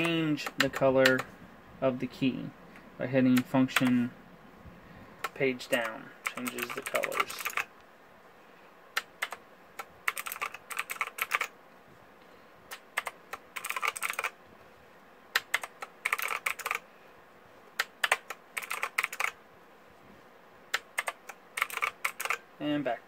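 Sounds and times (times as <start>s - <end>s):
mechanical keyboard key clicks: 20.7s - 22.4s.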